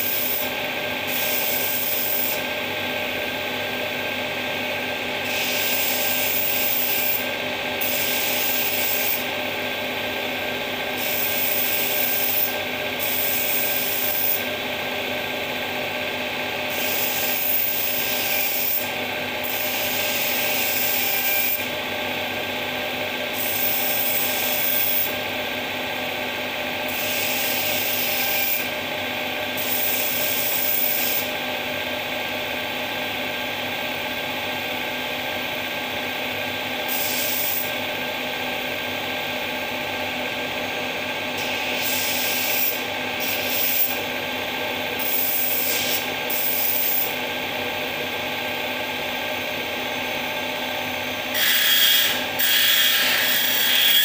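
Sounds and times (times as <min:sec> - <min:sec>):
sharpening machine motor hum: 0:00.0 - 0:04.2, 0:05.0 - 0:15.5, 0:16.3 - 0:21.9, 0:23.0 - 0:25.6, 0:26.5 - 0:28.9, 0:29.5 - 0:32.2, 0:34.6 - 0:54.0
knife grinding rasp: 0:05.2 - 0:09.3, 0:16.7 - 0:21.6, 0:26.9 - 0:28.7, 0:36.9 - 0:37.7, 0:41.4 - 0:44.0, 0:45.0 - 0:47.2, 0:51.3 - 0:54.0.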